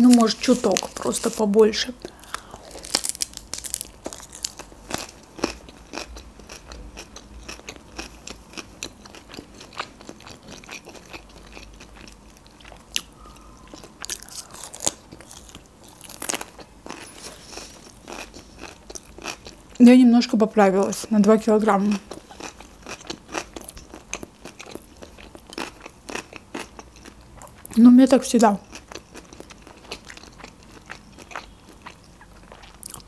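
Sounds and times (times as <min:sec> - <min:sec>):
crunching of crisp seaweed: 0:00.0 - 0:11.2, 0:12.0 - 0:19.6.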